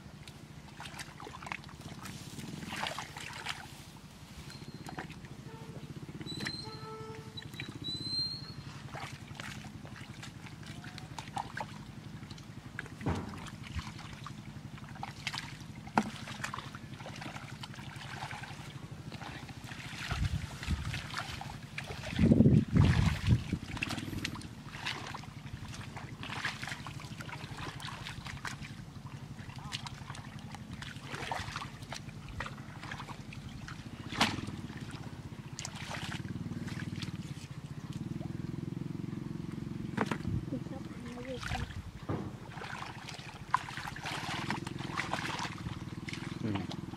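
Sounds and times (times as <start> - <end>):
small engine hum: 0.0 - 46.9
hands squelching in mud: 0.2 - 3.9, 8.8 - 38.1, 42.5 - 46.9.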